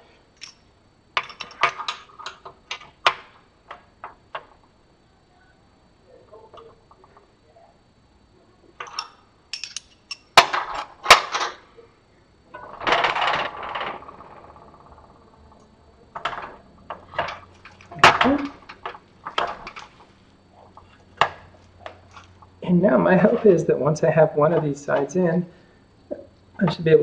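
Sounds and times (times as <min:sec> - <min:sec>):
metal clanks and clicks: 0:08.8 - 0:11.6.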